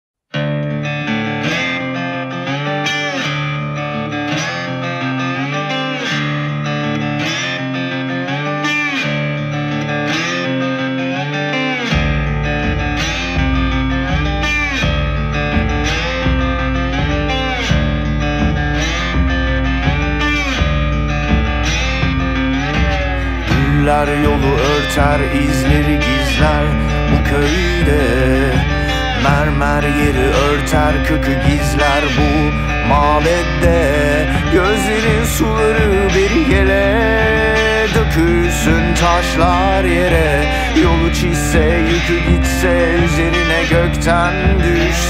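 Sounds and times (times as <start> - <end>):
guitar with sliding notes: 0.3 - 45.0
low bass: 12.0 - 45.0.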